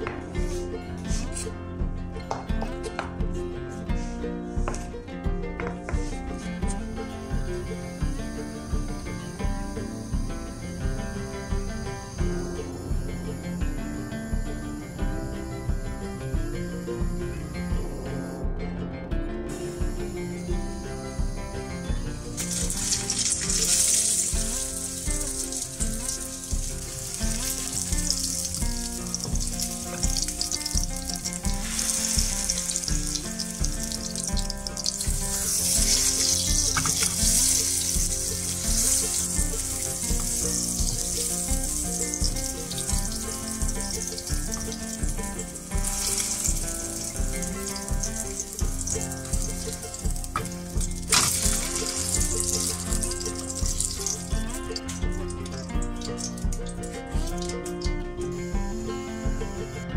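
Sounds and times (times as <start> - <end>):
background music with steady beat: 0.0 - 59.9
burger patty sizzling in oil: 22.3 - 57.8.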